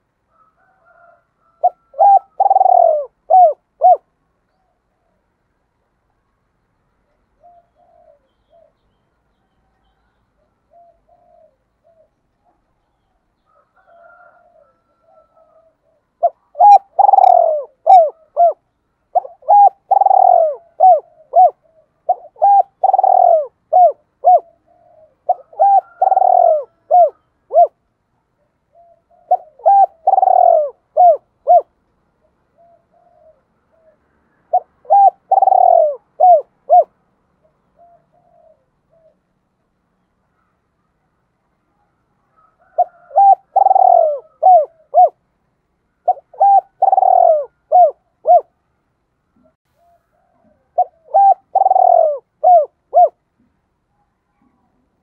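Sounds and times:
dove cooing: 0.0s - 5.2s, 7.3s - 8.9s, 10.4s - 12.7s, 13.5s - 27.8s, 28.7s - 39.3s, 42.3s - 45.2s, 46.0s - 48.6s, 49.4s - 53.5s.

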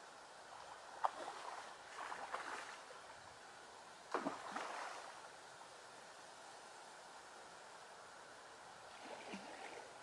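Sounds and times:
water splashing: 4.1s - 5.1s, 8.9s - 9.9s.

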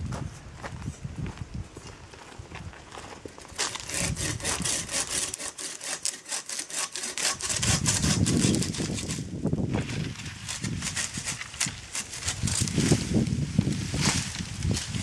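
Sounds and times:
hand saw cutting a branch: 3.5s - 9.4s, 10.0s - 15.0s.

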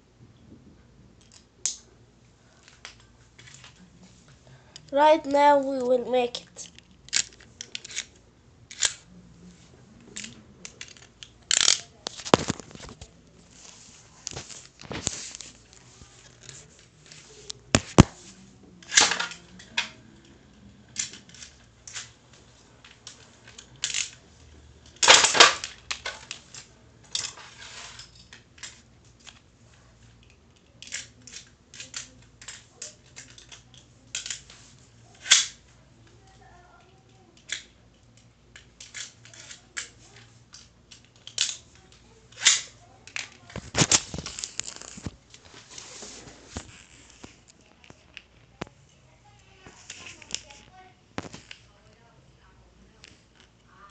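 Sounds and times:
plastic and metal parts clicking: 6.6s - 9.0s, 10.0s - 13.1s, 22.8s - 24.2s, 30.2s - 34.6s, 35.2s - 45.1s.

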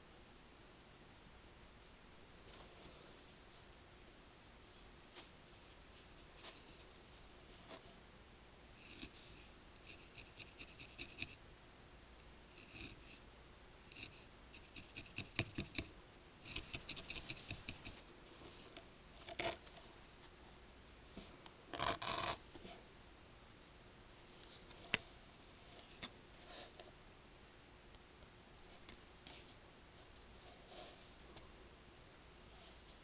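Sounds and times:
felting needle poking wool: 8.8s - 11.4s, 13.9s - 18.0s.

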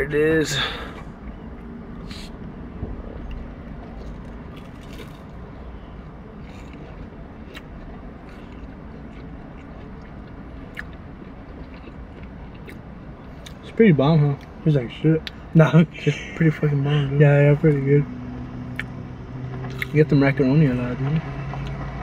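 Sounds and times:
low hum in car cabin: 0.0s - 22.0s
crunchy food chewing: 3.2s - 5.4s, 6.3s - 13.6s.

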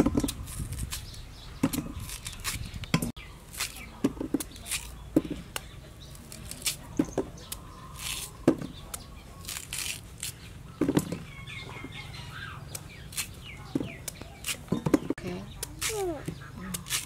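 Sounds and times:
birds chirping: 0.0s - 17.0s.

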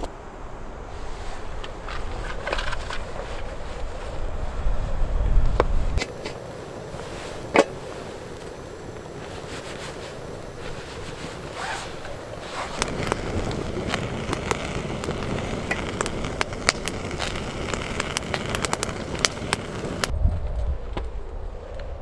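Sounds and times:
wood fire crackling and popping: 5.4s - 20.1s
low rumble: 12.7s - 22.0s.

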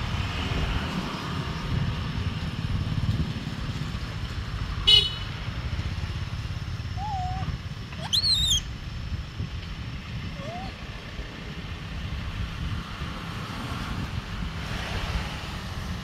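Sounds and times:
low outdoor rumble: 0.0s - 14.6s
high wavering squeal: 7.0s - 8.7s.

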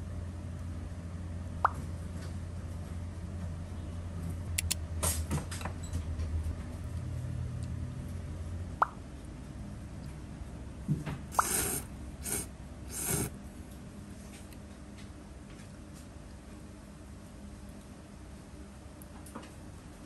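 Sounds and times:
brief pops: 11.3s - 13.2s
person slurping noodles: 11.3s - 13.3s.

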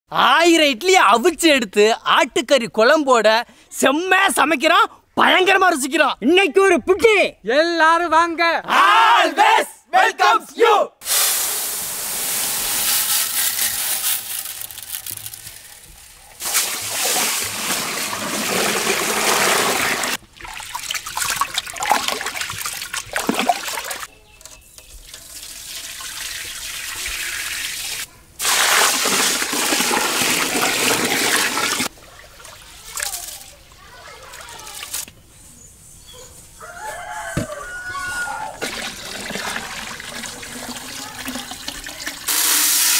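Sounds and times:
rice grains pouring into metal pot: 11.1s - 20.2s
water pouring onto rice: 16.4s - 24.0s, 25.1s - 33.1s, 38.6s - 42.9s.

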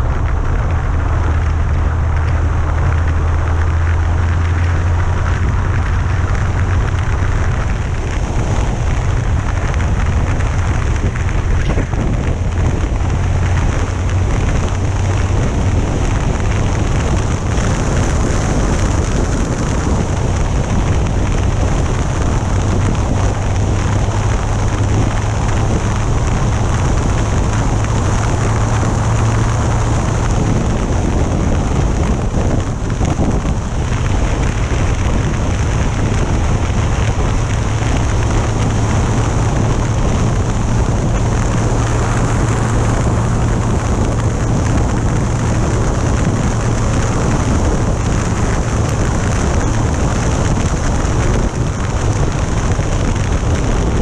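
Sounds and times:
motorcycle engine drone: 0.0s - 54.0s
wind noise on microphone: 0.0s - 54.0s.

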